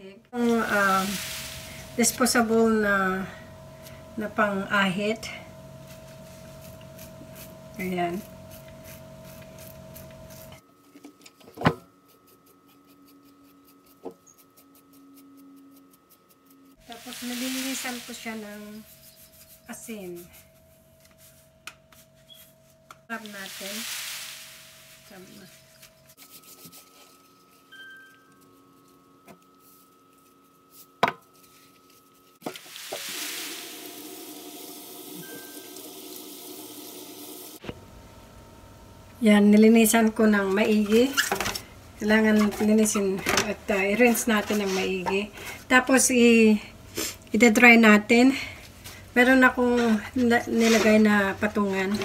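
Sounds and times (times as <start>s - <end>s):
razor scraping skin: 5.8s - 10.6s, 12.0s - 16.8s, 17.4s - 20.6s
tap water running into sink: 32.5s - 37.6s.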